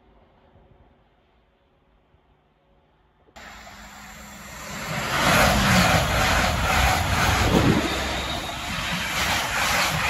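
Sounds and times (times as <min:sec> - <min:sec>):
diesel locomotive engine rumbling: 0:03.4 - 0:10.0
distant passing train: 0:03.4 - 0:10.0
train wheels clattering over rails: 0:03.6 - 0:10.0.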